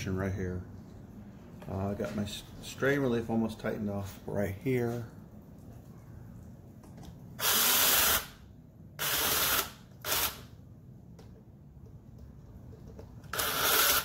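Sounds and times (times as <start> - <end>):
cordless drill running: 7.4 - 8.4, 9.0 - 10.4, 13.3 - 14.0.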